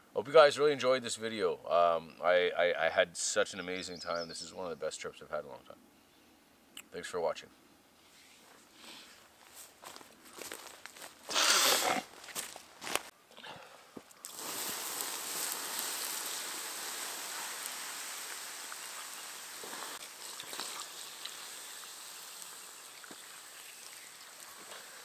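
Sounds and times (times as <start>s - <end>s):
coals hissing and steaming: 14.0s - 25.0s.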